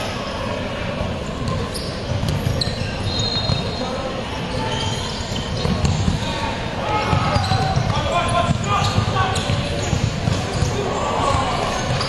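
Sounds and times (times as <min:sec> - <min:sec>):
sneaker squeaking on floor: 0:01.4 - 0:12.0
ball kicked and bouncing: 0:07.6 - 0:10.7.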